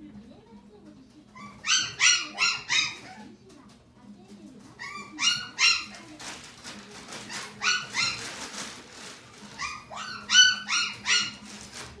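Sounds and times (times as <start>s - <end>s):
puppy yipping: 1.4s - 3.2s, 4.8s - 6.0s, 7.3s - 8.3s, 9.6s - 11.4s.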